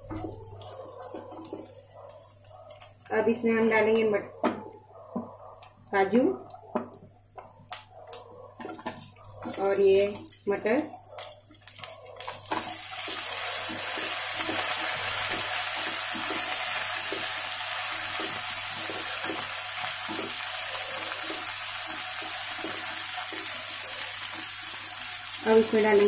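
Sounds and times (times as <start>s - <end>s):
food sizzling in hot oil: 11.2s - 26.0s.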